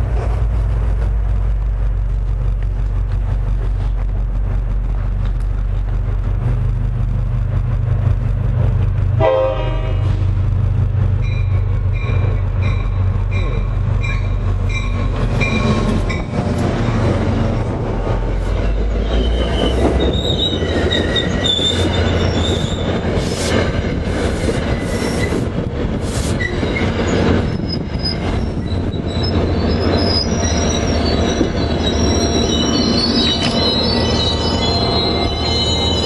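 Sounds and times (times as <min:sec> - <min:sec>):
locomotive rumbling: 0:00.0 - 0:36.0
train coaches rolling on rails: 0:00.0 - 0:36.0
wheel and brake squeals: 0:18.5 - 0:23.3, 0:24.4 - 0:25.5, 0:26.2 - 0:36.0.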